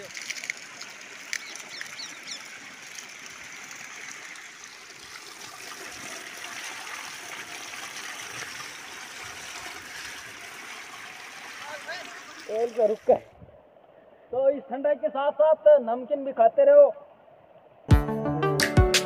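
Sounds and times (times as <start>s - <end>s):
water flowing over stone ledge: 0.0s - 13.2s.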